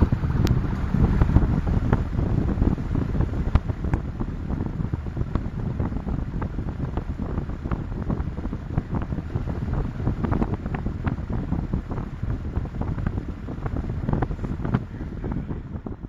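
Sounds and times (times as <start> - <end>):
dense low rumbling: 0.0 - 16.0.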